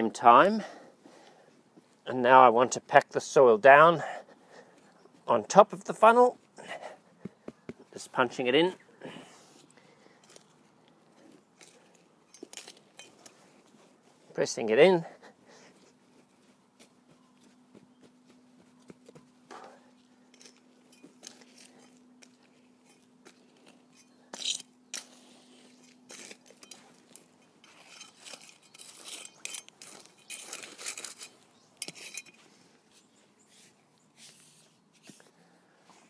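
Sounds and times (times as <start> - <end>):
hands pressing soil: 6.6 - 14.4, 15.2 - 36.0.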